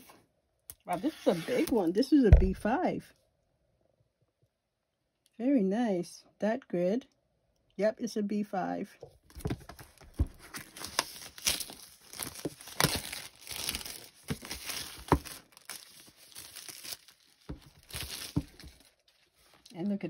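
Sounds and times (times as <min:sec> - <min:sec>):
plastic wrap crinkling: 0:09.2 - 0:19.8
packaging tearing: 0:09.8 - 0:19.4.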